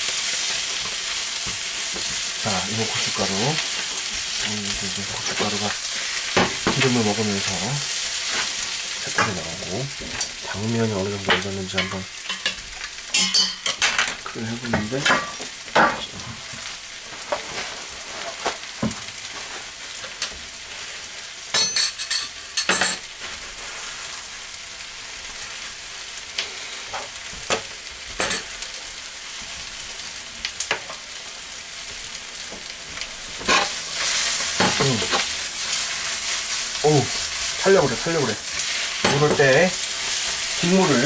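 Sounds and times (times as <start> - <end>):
food sizzling in a wok: 0.0 - 41.0
spatula scraping and knocking pan: 33.3 - 41.0.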